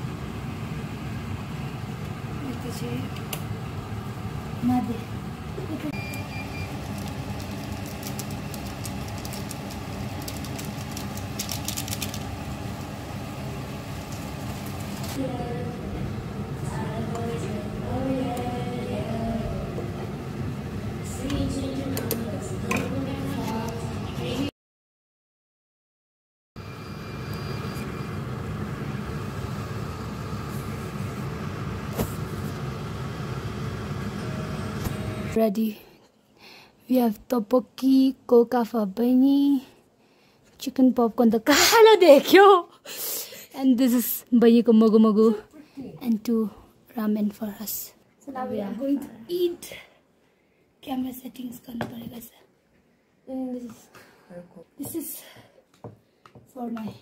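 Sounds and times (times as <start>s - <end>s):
faint high beep: 5.9s - 6.7s, 26.7s - 28.1s
crackles: 6.2s - 13.0s
liquid boiling hard in a pan: 6.6s - 15.2s.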